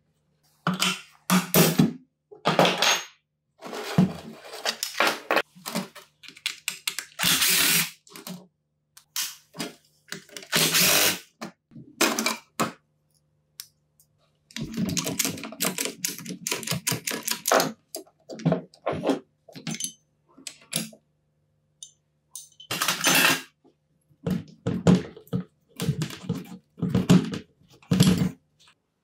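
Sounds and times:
scraping sounds: 3.6s - 5.3s.

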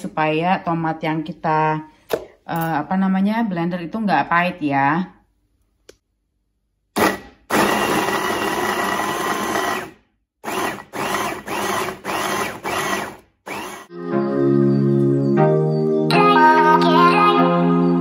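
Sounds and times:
electric food chopper motor: 7.0s - 13.9s.

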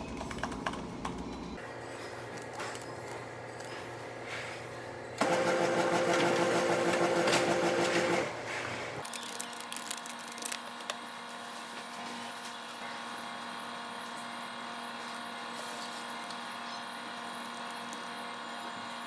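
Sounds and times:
machine whirring: 5.2s - 8.4s.

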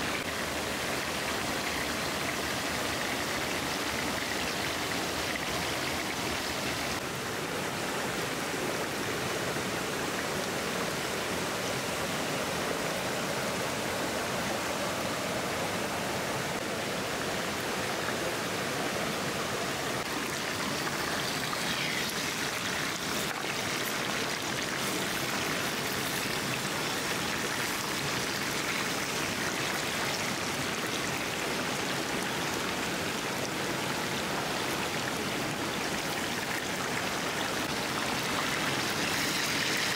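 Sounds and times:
hot oil sizzling: 20.1s - 30.2s, 38.0s - 39.9s.

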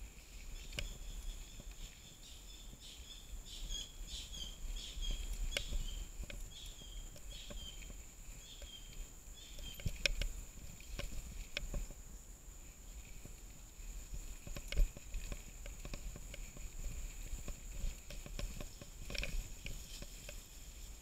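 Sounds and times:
bird chirping: 0.4s - 10.2s.

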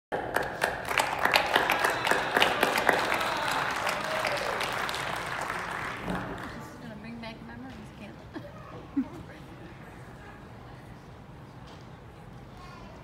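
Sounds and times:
audience applauding: 0.1s - 6.8s.

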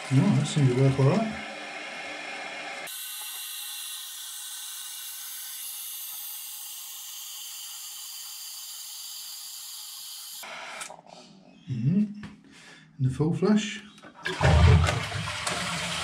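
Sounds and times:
toilet fill valve hissing: 0.0s - 10.9s, 14.2s - 16.0s.

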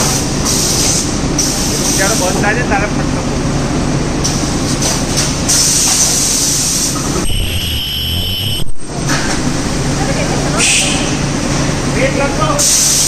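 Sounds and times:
pneumatic air hiss: 0.4s - 2.3s, 5.5s - 7.4s, 10.6s - 11.2s, 12.6s - 13.0s
steady high whine: 6.7s - 12.4s
low hum: 7.0s - 11.7s.

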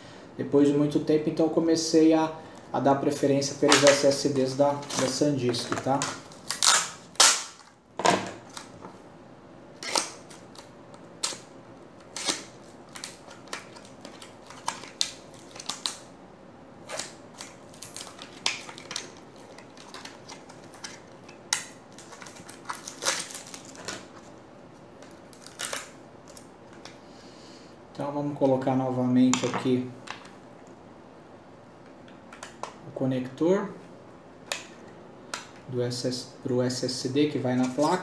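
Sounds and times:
plastic blister pack crackling: 3.6s - 7.7s, 16.8s - 24.2s.

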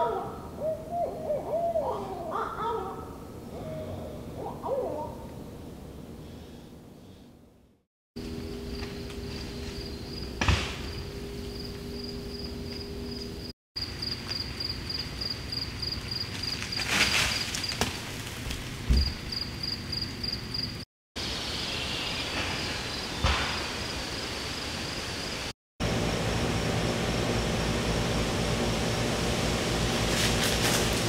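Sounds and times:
brief rustle: 16.4s - 18.6s.

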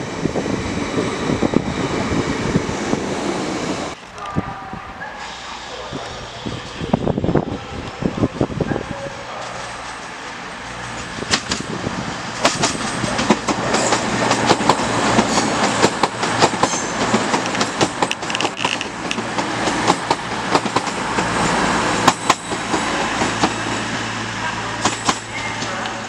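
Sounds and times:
train diesel engine drone: 4.6s - 26.0s
train wheels knocking over rail joints: 12.4s - 21.0s.

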